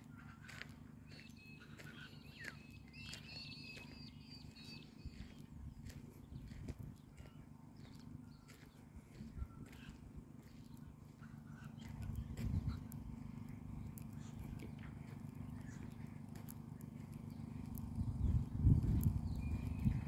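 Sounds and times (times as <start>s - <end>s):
wind buffeting microphone: 5.0s - 7.2s, 8.9s - 10.3s, 11.8s - 14.7s, 17.4s - 20.0s
faint clicks: 11.8s - 18.2s.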